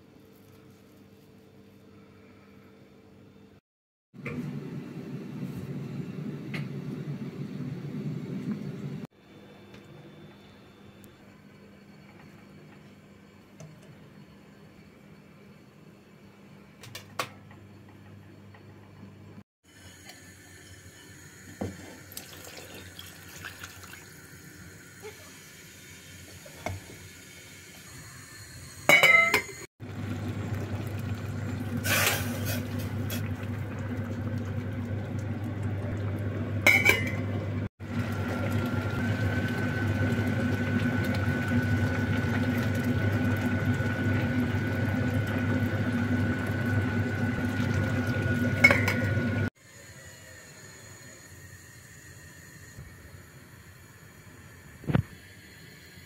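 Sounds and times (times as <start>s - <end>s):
water pouring into pot: 20.4s - 26.2s, 29.8s - 36.3s, 37.8s - 49.4s
hiss and hum with high tone: 49.6s - 56.0s.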